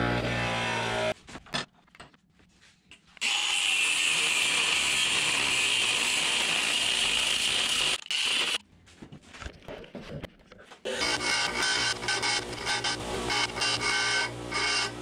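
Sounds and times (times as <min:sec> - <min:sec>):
angle grinder cutting metal rod: 0:00.0 - 0:01.2, 0:03.2 - 0:08.6, 0:10.9 - 0:15.0.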